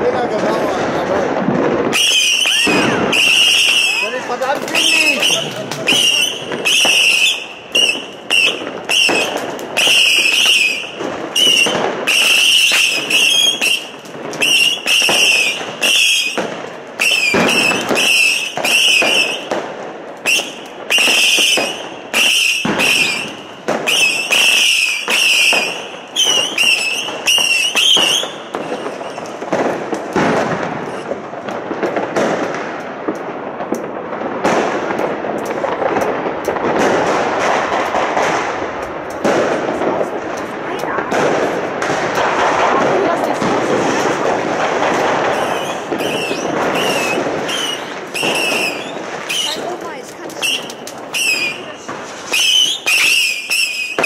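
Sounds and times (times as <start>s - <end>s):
fireworks bangs: 0.0s - 54.0s
fireworks crackling: 0.0s - 54.0s
firework whistles: 1.7s - 19.6s, 20.2s - 31.2s, 41.1s - 54.0s.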